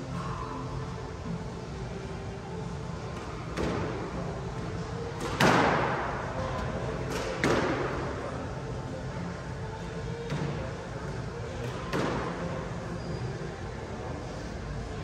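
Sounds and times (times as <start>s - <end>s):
squash ball cracks echoing: 5.2s - 6.3s, 7.0s - 8.2s.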